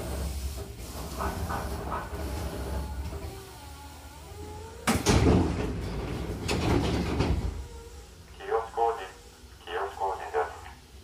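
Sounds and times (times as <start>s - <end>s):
train rumbling to a stop: 0.0s - 8.4s
train doors opening with a rush: 0.0s - 10.2s.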